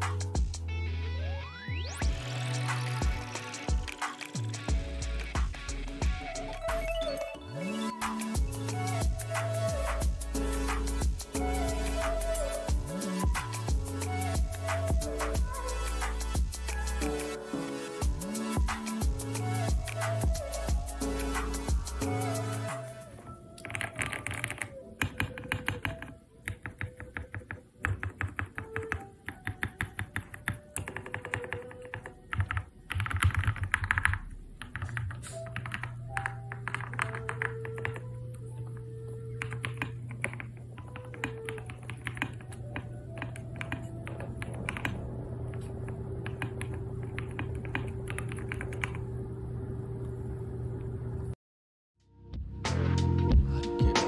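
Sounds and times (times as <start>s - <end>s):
mechanical keyboard typing: 2.7s - 5.4s, 23.6s - 38.1s, 39.3s - 49.1s.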